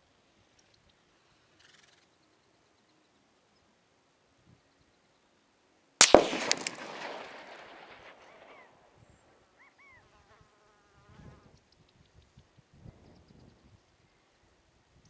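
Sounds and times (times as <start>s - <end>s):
rifle shot echo: 6.0s - 9.2s.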